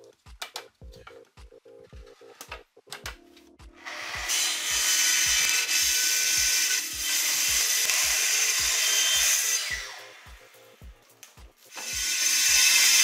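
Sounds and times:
track saw cutting plastic: 3.8 - 10.2, 11.7 - 13.0.

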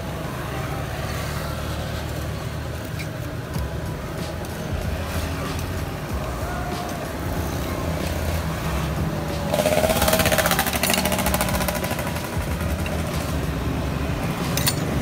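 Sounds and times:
road traffic rumble: 0.0 - 15.0
motorbike passing: 4.7 - 15.0.

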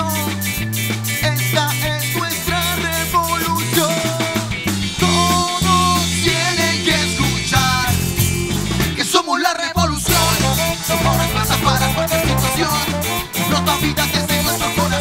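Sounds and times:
drum kit: 0.0 - 9.2, 10.0 - 15.0
electric guitar: 0.0 - 9.2, 9.8 - 15.0
bass guitar: 0.0 - 15.0
male lead singer: 0.0 - 15.0
saxophone and trombone: 10.1 - 15.0.

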